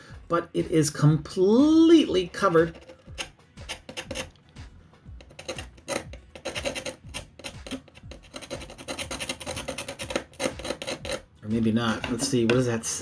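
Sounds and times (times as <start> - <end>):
screwdriver scraping chip: 2.4 - 4.5, 5.1 - 11.3.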